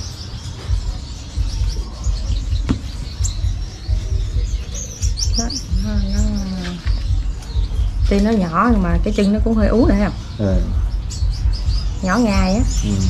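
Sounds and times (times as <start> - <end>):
finches chirping: 0.0 - 13.0
low rumble: 0.0 - 13.0
person's voice: 12.1 - 13.0.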